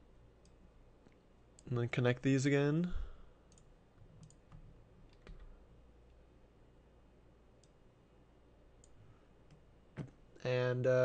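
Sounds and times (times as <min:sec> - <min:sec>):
computer mouse clicks: 0:03.5 - 0:05.5.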